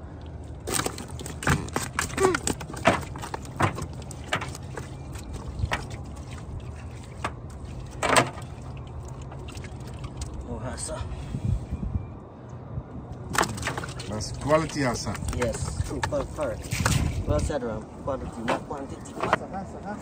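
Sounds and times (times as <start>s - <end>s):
water splashes: 0.6s - 10.6s, 13.3s - 17.4s.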